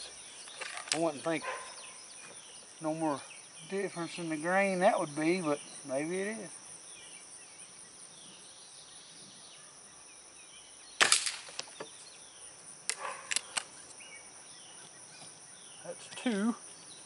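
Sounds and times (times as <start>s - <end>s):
crickets chirping: 0.0s - 17.0s
air rifle clicks: 12.9s - 13.7s.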